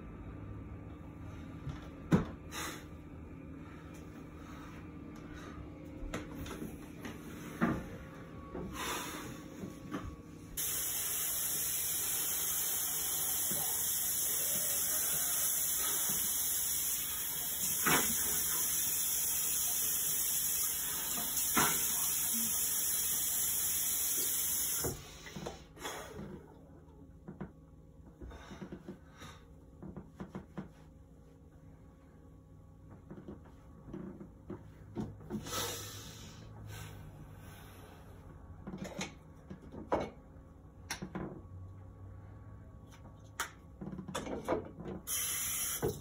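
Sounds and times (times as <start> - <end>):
faucet running: 10.6 - 25.0, 45.1 - 46.0.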